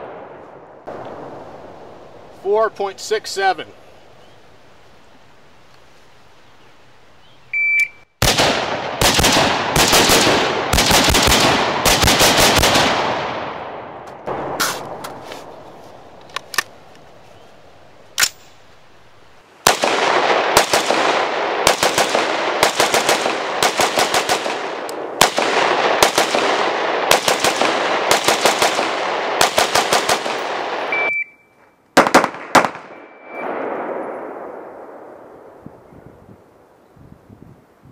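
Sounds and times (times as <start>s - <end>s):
rifle gunshots with echo: 8.2s - 15.1s, 19.6s - 31.0s, 32.0s - 35.7s.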